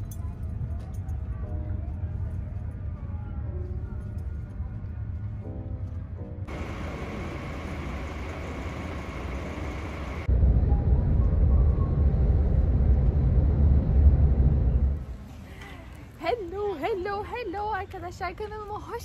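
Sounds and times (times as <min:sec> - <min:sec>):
road and engine rumble: 0:00.0 - 0:19.0
idling coach hum: 0:06.5 - 0:15.0.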